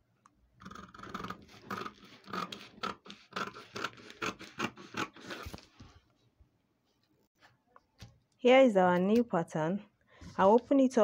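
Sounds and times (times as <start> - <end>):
scissors snipping paper: 0.7 - 5.7.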